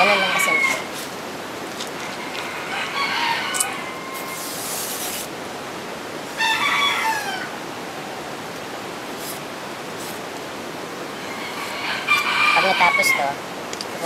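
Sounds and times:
rooster crowing: 0.0s - 1.1s, 2.0s - 4.6s, 6.2s - 8.8s, 11.1s - 13.4s
knife scraping leaves: 0.1s - 2.5s, 3.2s - 5.3s, 9.1s - 10.4s.

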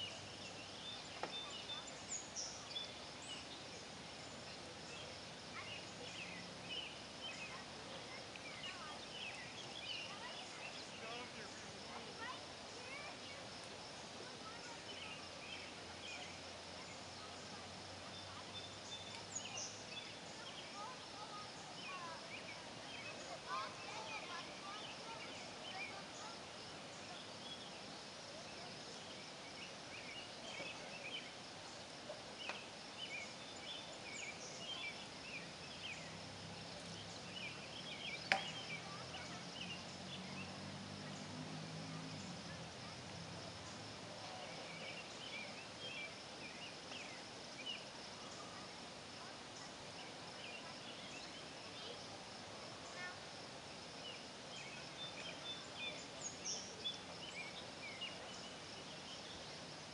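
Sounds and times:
chirps: 36.8s - 41.3s.

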